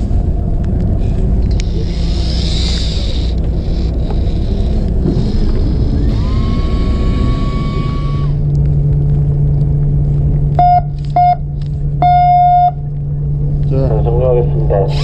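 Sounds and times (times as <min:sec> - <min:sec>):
boat engine humming: 0:00.0 - 0:15.0
boat horn blasts: 0:06.1 - 0:08.4.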